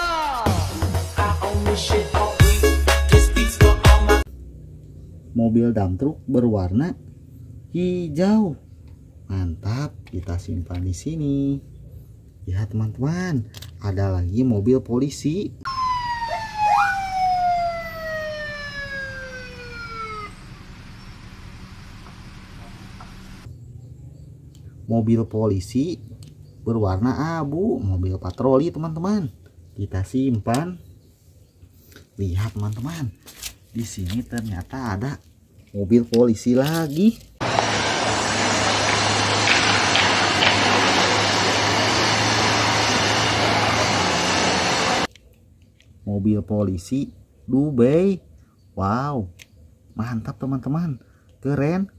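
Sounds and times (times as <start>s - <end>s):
siren chirps: 15.6s - 23.5s
police siren wailing: 15.7s - 23.5s
low hum: 15.7s - 24.3s.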